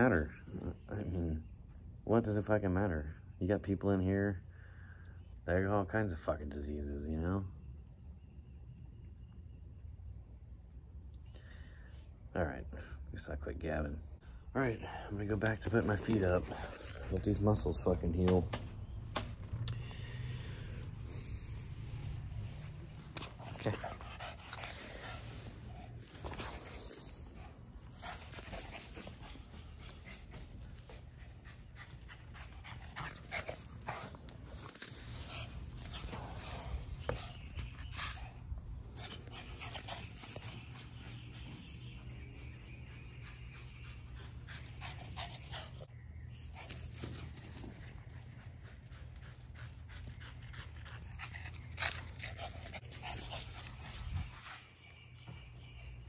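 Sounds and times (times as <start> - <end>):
dog panting: 20.8 - 45.9, 46.6 - 55.2.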